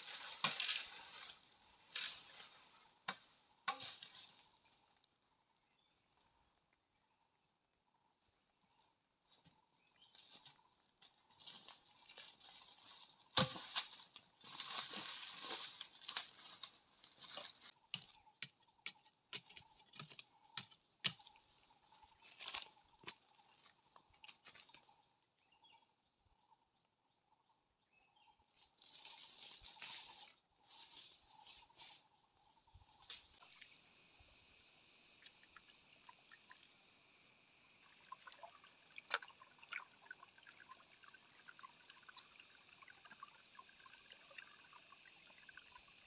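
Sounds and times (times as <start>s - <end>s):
footsteps crunching dry leaves: 13.8s - 17.7s, 28.8s - 32.0s.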